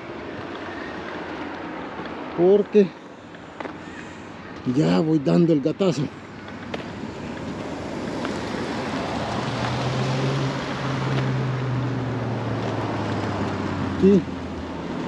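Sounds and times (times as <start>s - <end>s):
tyre noise on paved road: 0.0s - 15.0s
low engine hum: 5.8s - 15.0s.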